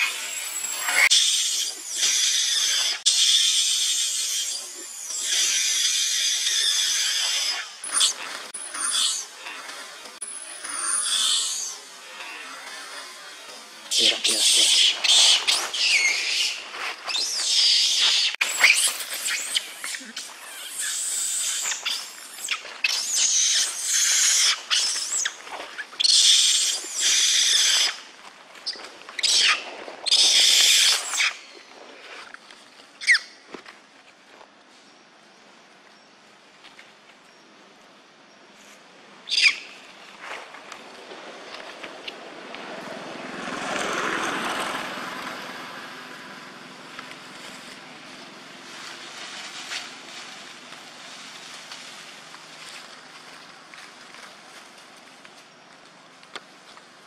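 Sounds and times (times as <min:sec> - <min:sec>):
monkey screaming: 0:00.0 - 0:25.4, 0:26.0 - 0:28.0, 0:28.7 - 0:31.4, 0:39.3 - 0:39.7.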